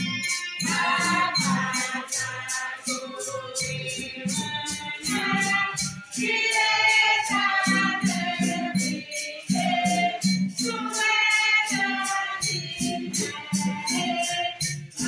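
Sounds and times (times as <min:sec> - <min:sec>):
shaker keeping a beat: 0:00.0 - 0:15.0
choir singing a hymn: 0:00.6 - 0:14.6.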